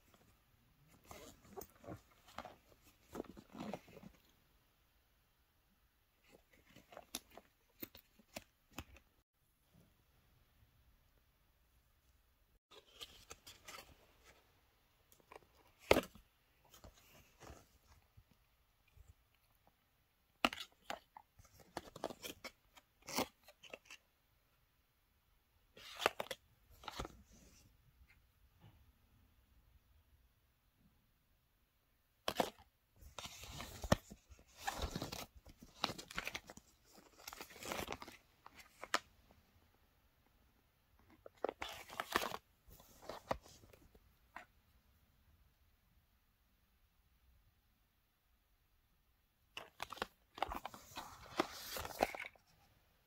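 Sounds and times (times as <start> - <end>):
packaging rustling in pouch: 49.6 - 52.5.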